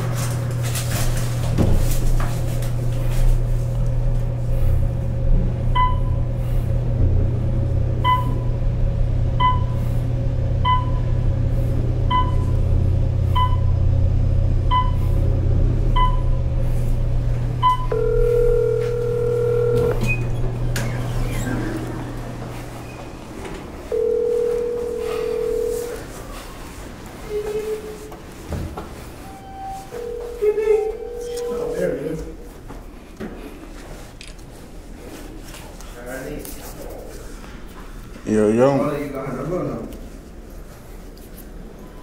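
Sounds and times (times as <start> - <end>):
steady low hum: 0.0 - 42.0
short electronic beeps: 29.2 - 30.2
long two-note electronic tone: 29.2 - 32.0.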